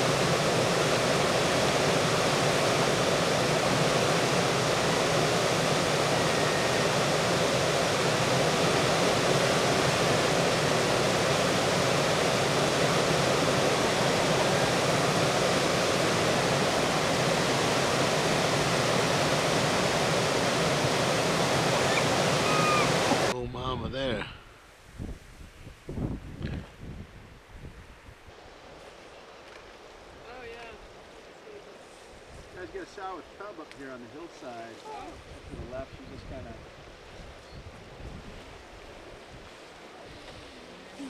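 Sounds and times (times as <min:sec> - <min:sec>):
river rapids rushing over rocks: 0:00.0 - 0:23.3.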